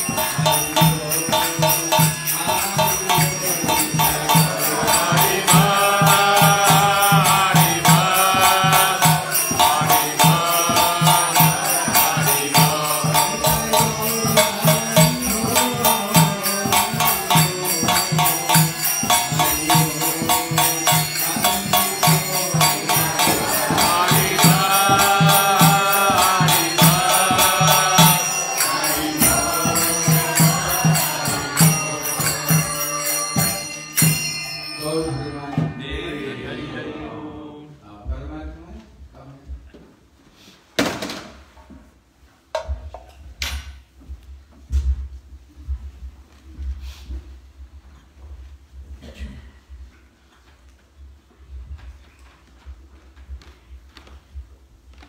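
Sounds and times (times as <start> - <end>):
man singing a chant: 0.0 - 33.8, 34.8 - 38.3
hand cymbals ringing: 0.0 - 36.5.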